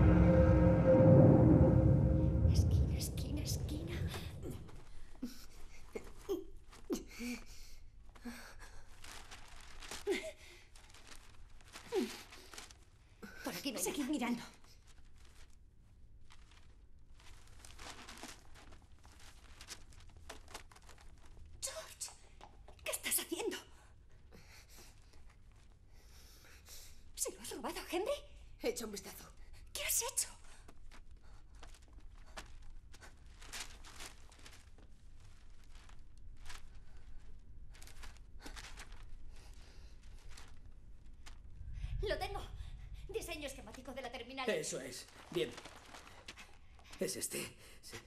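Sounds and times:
rummaging through a bag: 7.8s - 22.9s, 30.6s - 41.7s, 44.7s - 47.1s
paper pages rustling: 8.0s - 22.9s, 30.7s - 41.6s, 43.5s - 47.1s.

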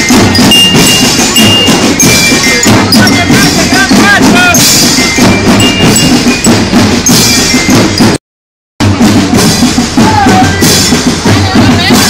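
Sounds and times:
marching percussion band: 0.0s - 8.2s, 8.8s - 12.0s
snare drum strokes: 0.0s - 8.2s.

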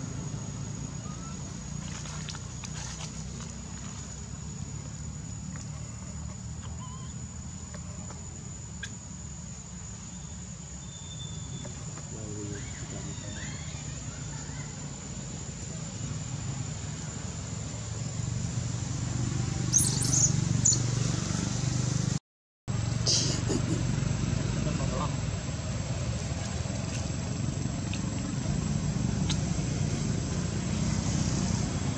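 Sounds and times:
dry leaves crackling: 1.4s - 4.4s.

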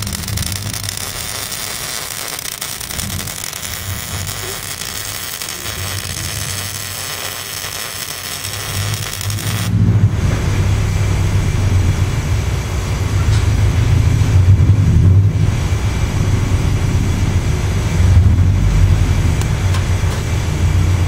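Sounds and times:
welding arc crackling hiss: 0.0s - 9.8s
low hum: 0.0s - 21.0s.

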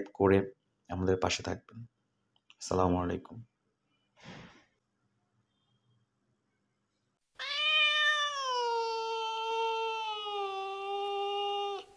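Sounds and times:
cat meowing: 7.4s - 11.9s.

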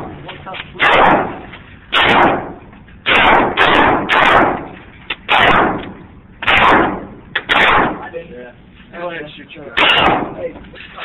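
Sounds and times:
handgun shots echoing indoors: 3.1s - 4.7s.

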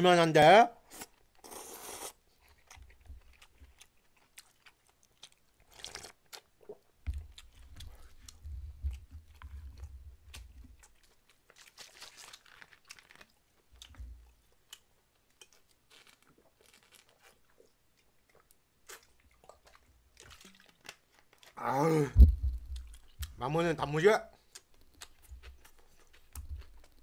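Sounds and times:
wet chewing sounds: 0.8s - 23.4s, 24.3s - 27.0s
slurping noodles: 0.9s - 2.2s, 5.7s - 6.2s
low thuds: 22.1s - 23.4s.

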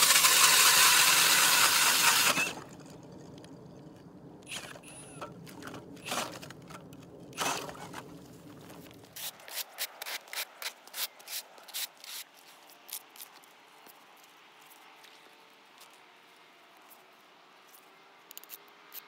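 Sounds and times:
ice auger grinding through ice: 0.0s - 3.0s, 4.5s - 12.2s
crunches in snow and ice: 5.4s - 17.7s.

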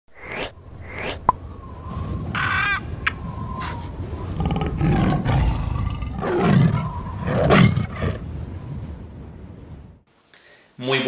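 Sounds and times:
tiger roars: 4.4s - 8.2s.

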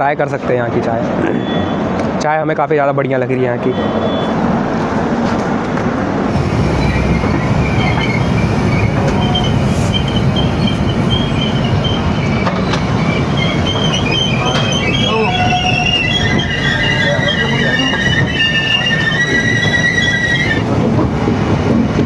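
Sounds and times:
train coaches rumbling: 0.0s - 22.0s
wheels squealing on rails: 1.2s - 1.9s, 3.6s - 4.4s, 6.3s - 20.9s.

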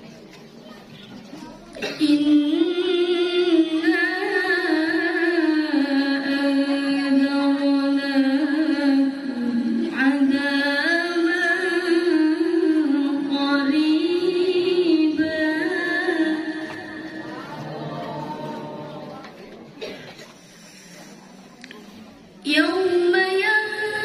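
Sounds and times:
woman chanting melodically: 1.9s - 19.4s.

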